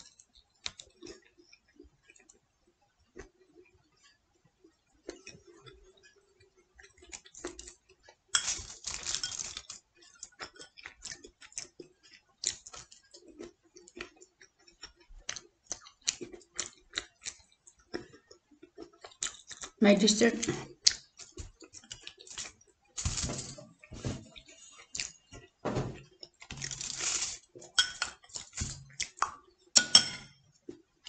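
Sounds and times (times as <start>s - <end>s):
rustling: 26.6s - 27.4s.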